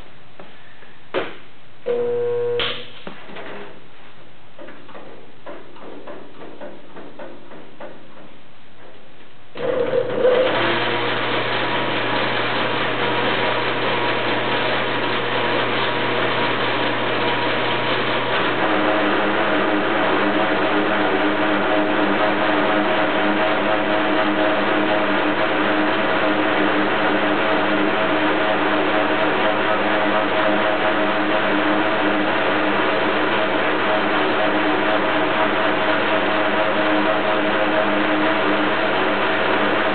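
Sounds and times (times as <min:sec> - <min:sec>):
wire stripping machine whining: 0:09.6 - 0:39.9.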